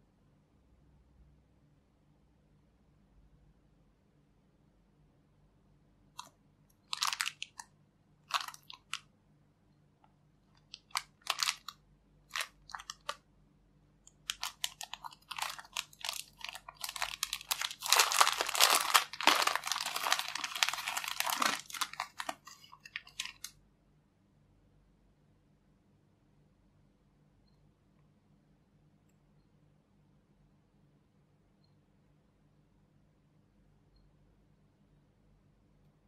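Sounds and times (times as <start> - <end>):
plastic bag crinkling: 6.8 - 7.7, 8.3 - 9.0, 10.6 - 13.2, 14.1 - 23.5.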